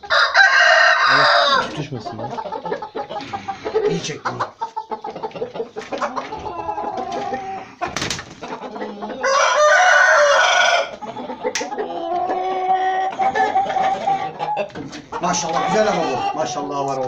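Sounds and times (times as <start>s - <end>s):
rooster crowing: 0.0s - 1.8s, 9.2s - 11.0s
chickens clucking: 0.0s - 17.0s.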